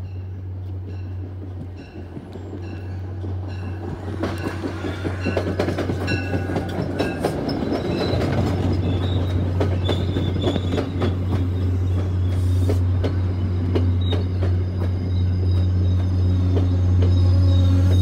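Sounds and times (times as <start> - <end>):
train bell ringing: 0.0 - 12.3, 13.0 - 18.0
train wheels clattering over rails: 0.6 - 18.0
high wheel squeal: 4.4 - 18.0.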